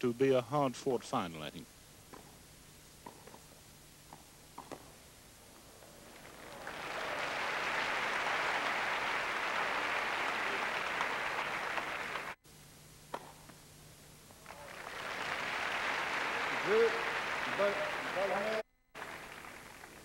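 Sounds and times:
racket hitting tennis ball: 3.0 - 3.4, 4.1 - 4.9
crowd applauding: 6.0 - 12.4, 14.4 - 20.0.

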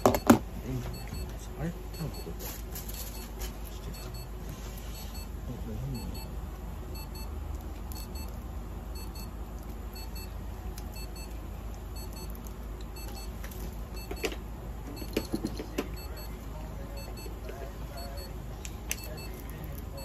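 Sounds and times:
medical equipment double beeps: 0.0 - 2.4, 3.9 - 4.3, 6.0 - 6.3, 7.0 - 8.3, 9.0 - 9.4, 10.0 - 10.3, 11.0 - 11.3, 12.0 - 12.3, 13.0 - 13.4, 14.9 - 20.0
steady low hum: 0.0 - 20.0.

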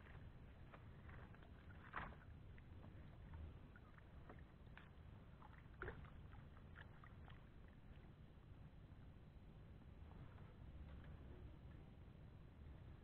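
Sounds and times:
water sloshing: 0.0 - 8.0.

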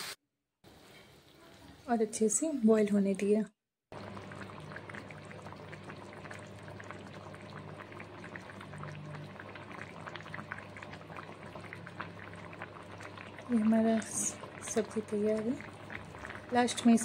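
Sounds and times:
curry boiling and bubbling: 3.9 - 17.0
low steady hum: 4.0 - 17.0.

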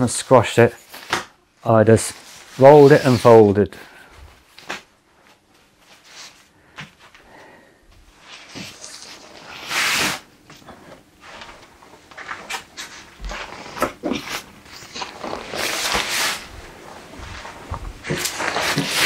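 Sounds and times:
fabric rustling and crinkling: 11.1 - 19.0.

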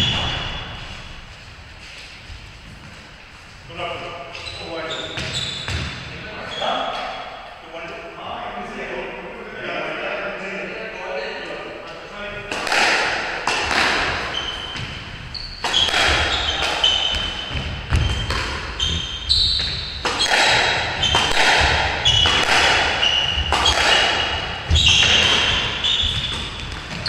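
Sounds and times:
sneakers squeaking on wooden floor: 0.0 - 7.4, 13.6 - 27.0
squash ball hits: 12.5 - 27.0.

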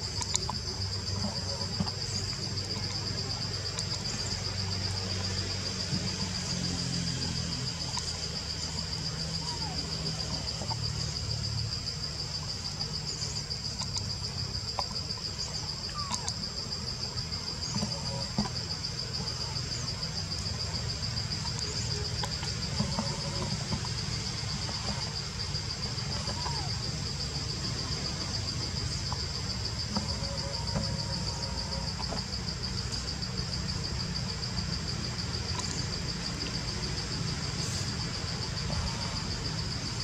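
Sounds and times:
high-pitched insect trill: 0.0 - 40.0.

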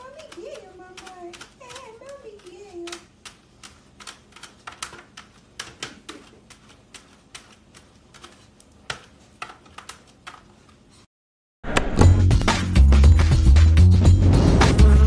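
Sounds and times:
loud music: 12.0 - 15.0.

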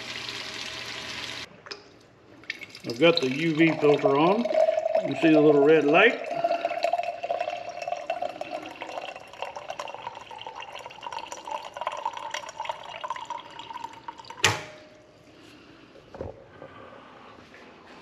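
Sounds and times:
water trickling into a glass: 2.4 - 14.4.

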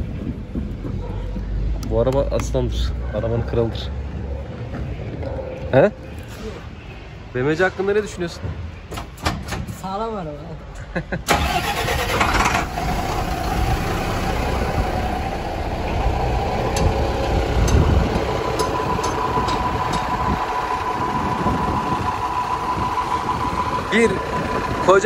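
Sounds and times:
diesel engine idling: 11.3 - 25.0
thin steady whine: 15.2 - 25.0.

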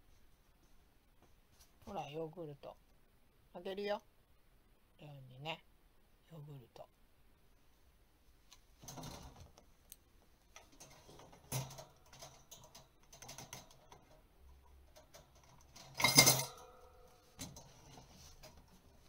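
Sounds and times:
ringing clatter: 15.0 - 17.2.

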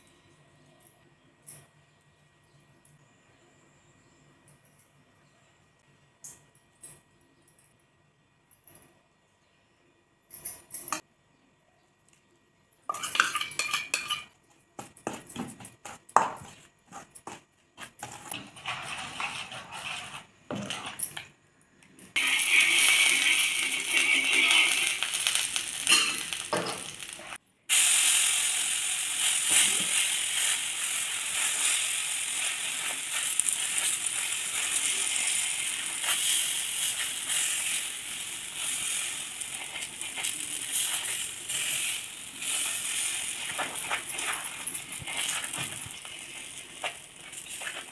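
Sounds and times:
batter sizzling on hot iron: 22.1 - 47.9
spoon scraping steel plate: 22.2 - 25.1.

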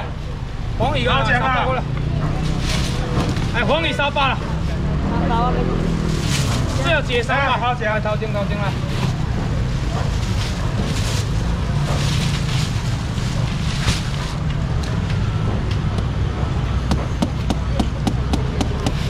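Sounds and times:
market background rumble: 0.0 - 19.0
plastic baskets clicking and stacking: 8.8 - 19.0.

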